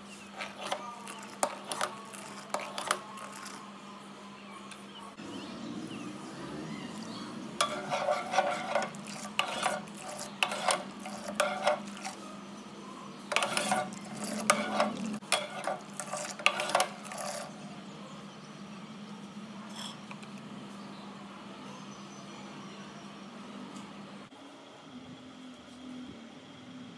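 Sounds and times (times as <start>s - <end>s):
steady low hum: 0.0s - 26.9s
spoon scraping a pot: 0.2s - 3.7s, 6.9s - 12.3s, 13.3s - 17.6s.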